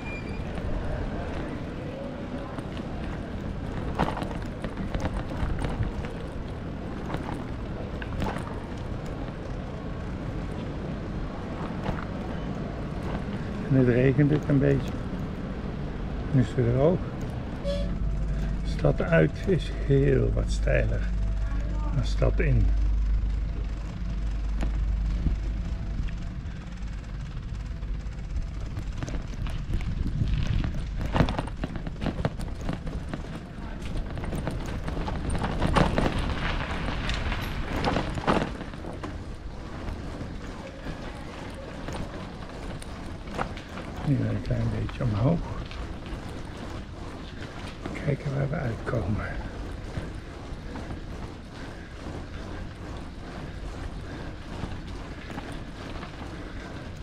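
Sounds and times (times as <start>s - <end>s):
bicycle rolling over cobbles: 0.0s - 57.0s
wind rumble on microphone: 23.2s - 57.0s
knocks and rattles from bumps: 23.6s - 57.0s.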